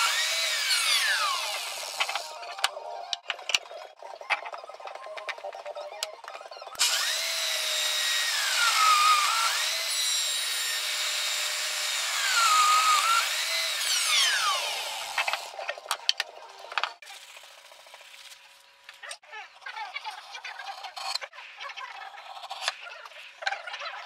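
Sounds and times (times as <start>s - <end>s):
electric router running: 0.0s - 2.4s, 6.8s - 15.6s.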